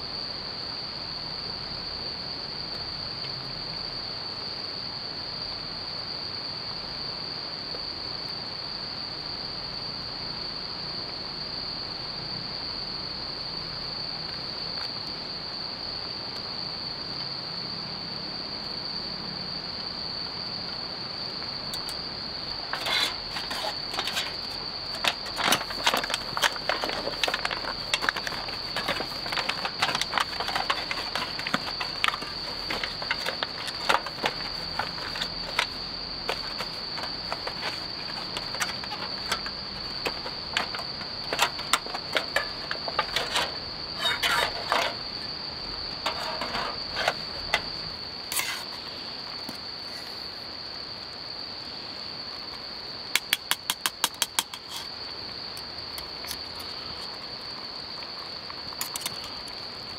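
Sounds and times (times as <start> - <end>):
crickets chirring: 0.0 - 59.9
aluminium foil crinkling: 22.7 - 45.3, 45.9 - 47.7.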